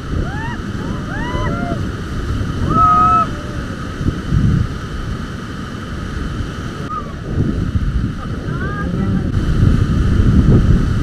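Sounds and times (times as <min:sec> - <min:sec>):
whitewater rapids rushing: 0:00.0 - 0:11.0
wind buffeting the microphone: 0:00.0 - 0:11.0
people whooping and shouting: 0:00.1 - 0:01.8, 0:02.6 - 0:03.8
long held cry: 0:00.1 - 0:01.9, 0:02.6 - 0:03.8.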